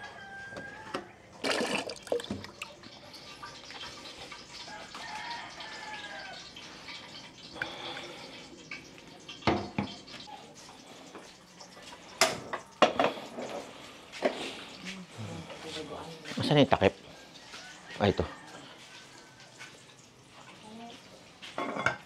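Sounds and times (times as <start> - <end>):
tap water splashing in sink: 1.4 - 2.9, 8.7 - 10.2.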